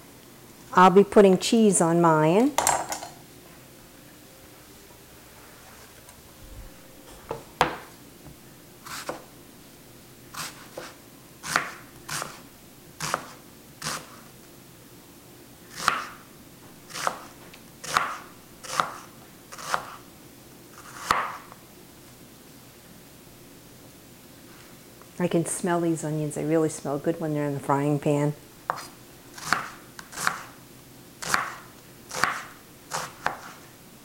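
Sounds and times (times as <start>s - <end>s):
cutting board knocking on counter: 7.3s - 7.9s
knife slicing onion on board: 8.8s - 9.3s, 10.3s - 12.4s, 13.0s - 14.2s, 15.7s - 16.2s, 16.9s - 20.0s, 20.7s - 21.6s, 28.7s - 30.6s, 31.2s - 33.7s.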